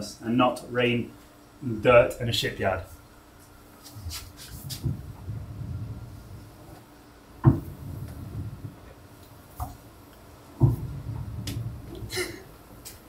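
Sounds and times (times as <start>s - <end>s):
ship's wheel steering rumble: 4.6s - 13.0s.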